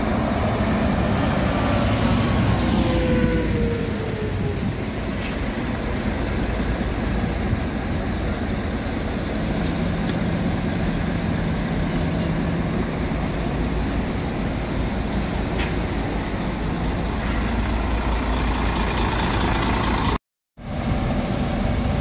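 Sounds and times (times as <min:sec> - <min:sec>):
falling engine tone: 0:00.0 - 0:07.4
low engine hum: 0:00.0 - 0:22.0
traffic rumble: 0:00.0 - 0:22.0.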